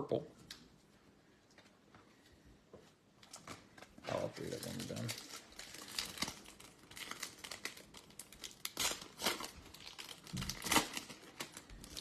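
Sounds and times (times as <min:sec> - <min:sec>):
foil wrapper crinkling and tearing: 0:04.2 - 0:12.0.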